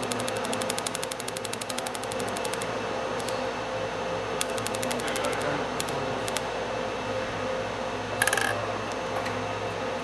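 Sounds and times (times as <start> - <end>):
laser welder sharp ticks: 0.0 - 3.4, 4.4 - 6.5
steady machine hum: 0.0 - 10.0.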